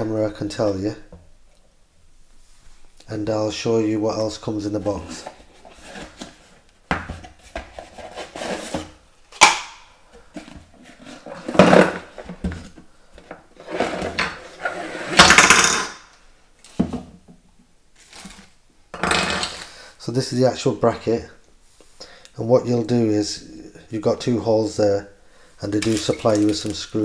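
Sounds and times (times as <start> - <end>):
cardboard and plastic rustling: 4.8 - 9.0, 18.0 - 18.6, 25.7 - 27.0.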